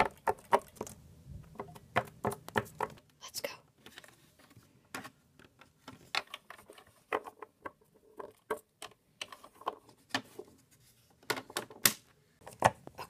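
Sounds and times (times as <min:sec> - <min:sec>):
plastic figurines tapping: 0:00.0 - 0:03.0.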